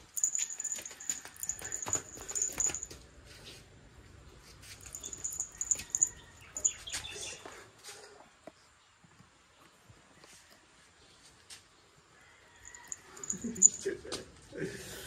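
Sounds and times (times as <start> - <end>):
small collar bell jingling: 0.0 - 3.0, 4.8 - 6.9, 12.6 - 13.9.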